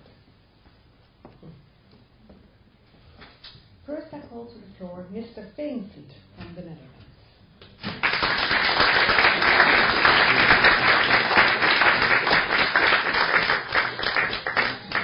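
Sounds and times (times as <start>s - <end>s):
audience applauding: 7.8s - 15.0s.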